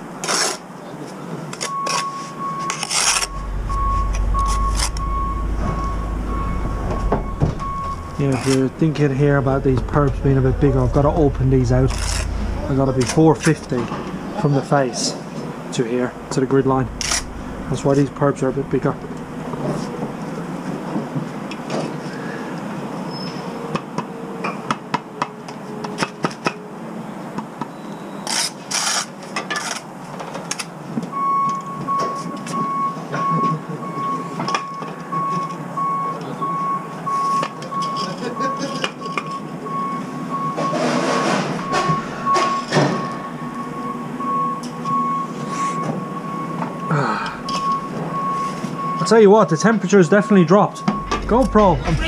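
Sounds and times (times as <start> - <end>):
reversing alarm beeping: 1.6 - 21.0, 31.1 - 52.0.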